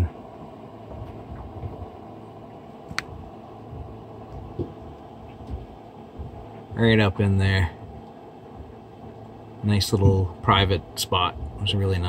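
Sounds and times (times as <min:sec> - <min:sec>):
low background rumble: 0:00.0 - 0:12.0
soft low thumps: 0:02.9 - 0:11.7.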